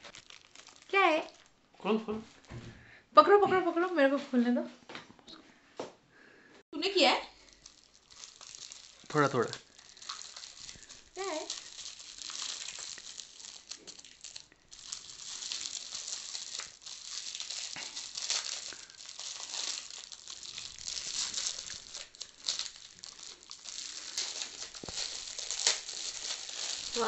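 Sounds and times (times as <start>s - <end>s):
metallic gift wrap crinkling: 0.0s - 1.5s, 7.3s - 27.0s.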